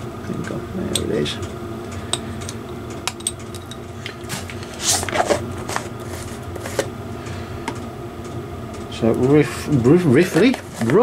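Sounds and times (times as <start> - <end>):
steady low hum: 0.0 - 11.0
scrape on workbench: 4.3 - 6.8
plastic containers rustling on cardboard: 4.3 - 6.9, 10.3 - 11.0.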